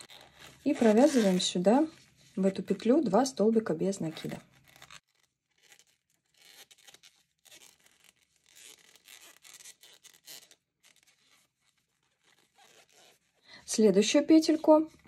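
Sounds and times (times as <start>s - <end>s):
yarn rustling and scraping: 0.0s - 3.0s, 3.9s - 13.4s.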